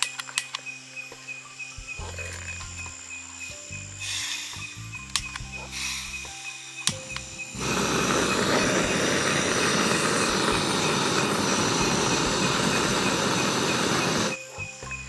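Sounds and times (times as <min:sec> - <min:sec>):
loud steady rushing noise: 0:07.6 - 0:14.4.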